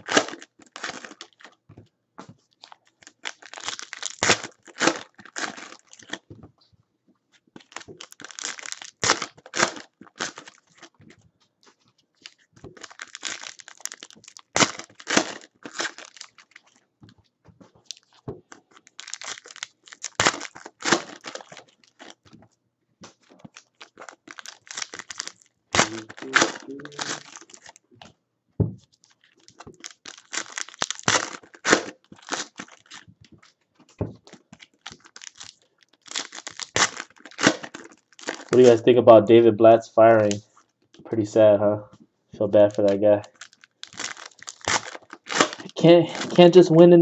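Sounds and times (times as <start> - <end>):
foil wrappers tearing and crinkling: 0.0 - 1.6, 2.6 - 6.3, 7.6 - 11.0, 12.2 - 16.8, 17.8 - 22.4, 23.1 - 27.8, 28.9 - 33.6, 34.2 - 38.9, 42.6 - 46.6.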